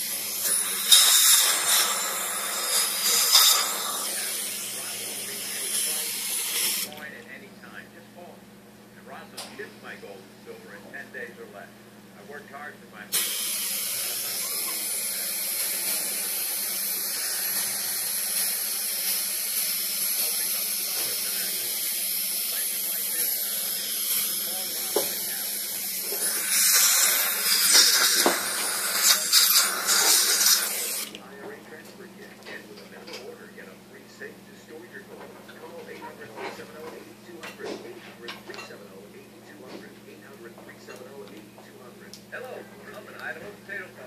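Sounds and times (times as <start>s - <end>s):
dental instrument air hiss: 0.0s - 6.9s, 13.1s - 31.1s.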